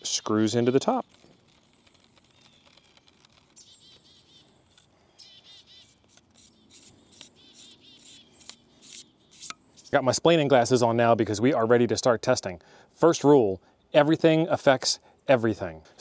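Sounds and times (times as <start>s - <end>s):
quiet outdoor ambience: 0.0s - 16.0s
small bird chirping: 0.1s - 10.0s.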